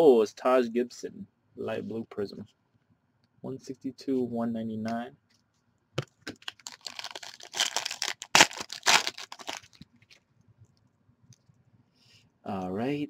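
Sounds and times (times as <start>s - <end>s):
foil wrapper tearing and crinkling: 6.4s - 9.8s.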